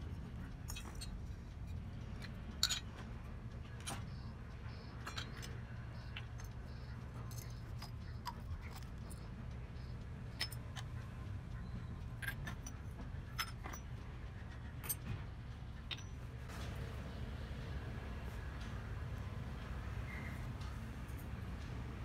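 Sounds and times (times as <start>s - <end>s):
steady low hum: 0.0s - 22.0s
small metal pots clinking: 2.6s - 2.9s.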